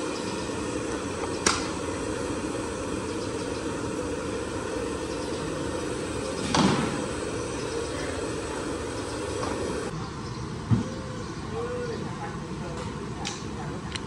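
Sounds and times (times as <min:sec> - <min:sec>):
steady low rumble: 0:00.0 - 0:10.7.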